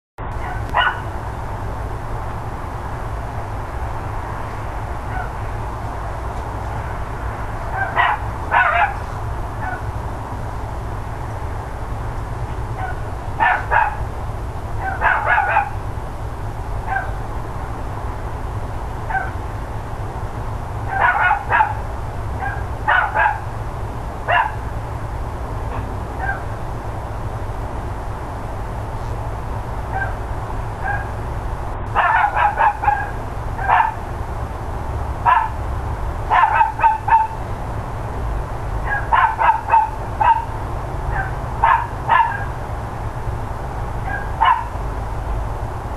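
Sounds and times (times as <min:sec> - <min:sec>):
low background rumble: 0:00.2 - 0:45.9
dogs barking: 0:00.4 - 0:01.2, 0:05.0 - 0:05.4, 0:07.7 - 0:10.0, 0:12.8 - 0:14.1, 0:14.8 - 0:15.9, 0:16.8 - 0:17.2, 0:19.1 - 0:19.4, 0:20.8 - 0:23.6, 0:24.2 - 0:24.7, 0:25.7 - 0:26.6, 0:29.9 - 0:30.2, 0:30.8 - 0:31.2, 0:31.9 - 0:34.1, 0:35.2 - 0:35.6, 0:36.3 - 0:37.4, 0:38.8 - 0:42.6, 0:44.0 - 0:44.8.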